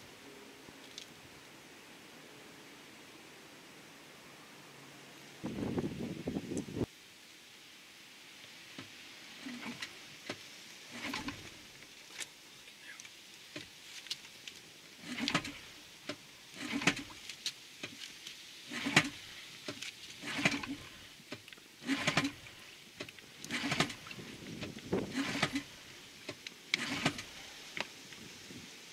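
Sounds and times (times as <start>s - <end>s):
outboard recoil starter whirring: 10.9s - 11.6s, 15.0s - 15.8s, 16.6s - 17.2s, 18.7s - 27.8s.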